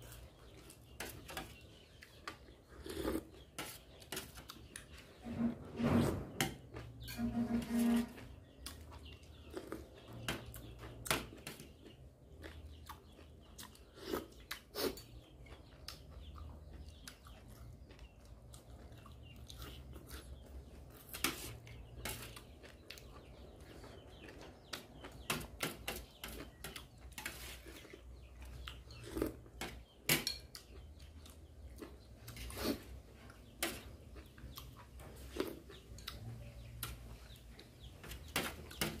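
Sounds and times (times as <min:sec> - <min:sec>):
spoon scraping metal tray: 0:05.1 - 0:08.4
chewing: 0:08.6 - 0:37.8.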